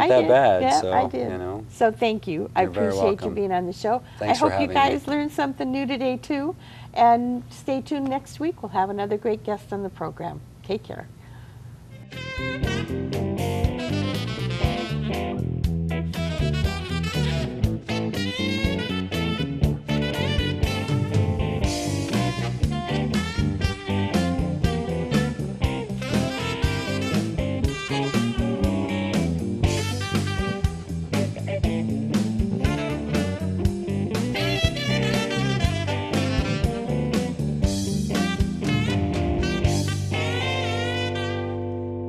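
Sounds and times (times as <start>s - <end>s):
instrumental music with steady beat: 12.0s - 42.0s.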